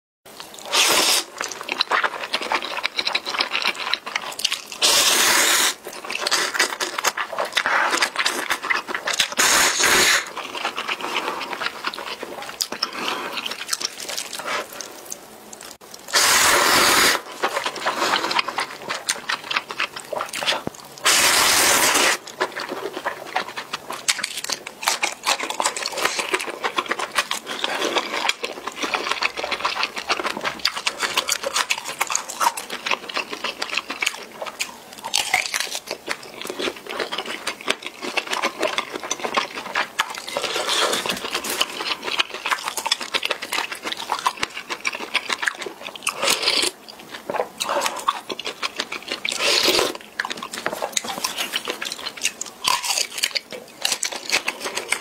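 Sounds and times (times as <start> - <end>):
wet chewing: 0.3 - 55.0
noodle slurping: 4.7 - 15.2, 16.1 - 23.6.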